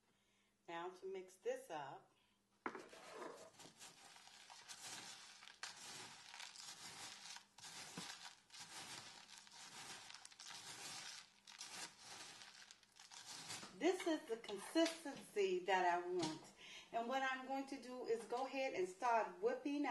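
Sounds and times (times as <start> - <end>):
bath salts crunching when stirred: 2.9 - 14.1.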